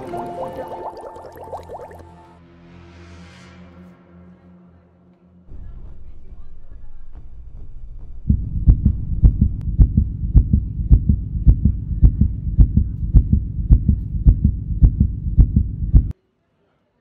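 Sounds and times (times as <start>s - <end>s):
heartbeat: 7.1s - 16.1s.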